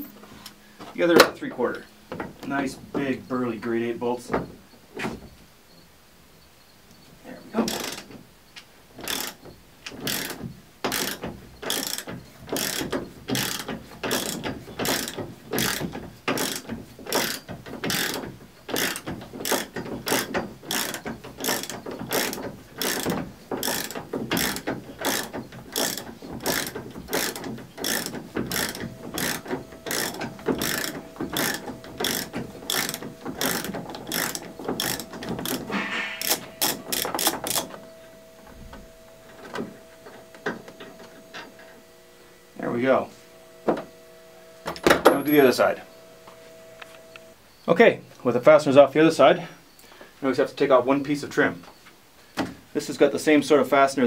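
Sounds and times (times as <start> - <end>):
ratchet wrench clicking: 7.6 - 8.1, 9.0 - 37.7.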